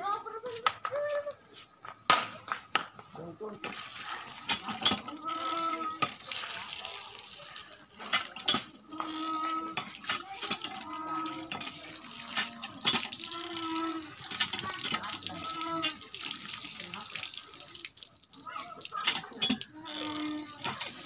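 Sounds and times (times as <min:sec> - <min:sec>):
hand pump squeaking: 0:03.6 - 0:06.6, 0:07.5 - 0:17.6, 0:18.5 - 0:21.0
water gushing onto leaves: 0:03.7 - 0:08.0, 0:09.9 - 0:21.0.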